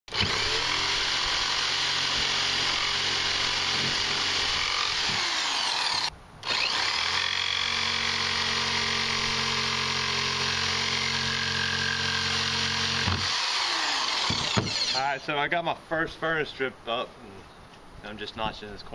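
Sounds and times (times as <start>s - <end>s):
jigsaw cutting wood: 0.1s - 15.1s.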